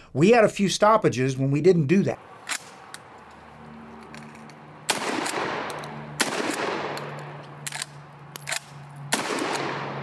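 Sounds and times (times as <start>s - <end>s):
sharp metallic clicks: 4.0s - 9.8s
shotgun blasts with echo: 4.9s - 7.2s, 9.1s - 10.0s.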